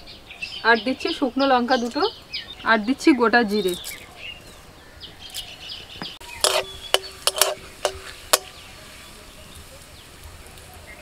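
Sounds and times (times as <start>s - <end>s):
metal spatula clinking and scraping: 6.3s - 8.6s.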